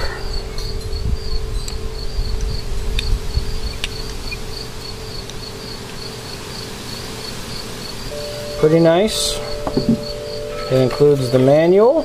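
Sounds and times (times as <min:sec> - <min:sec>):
insect chirping: 0:00.0 - 0:12.0
low hum: 0:07.5 - 0:11.4.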